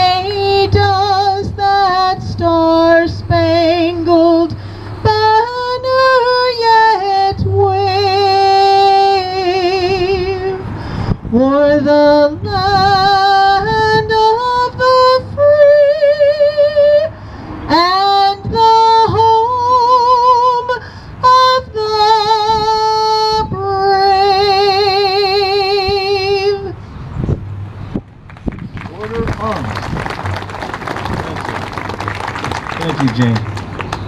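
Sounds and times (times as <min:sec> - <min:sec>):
woman singing unaccompanied: 0:00.0 - 0:10.6, 0:11.3 - 0:17.1, 0:17.7 - 0:26.8.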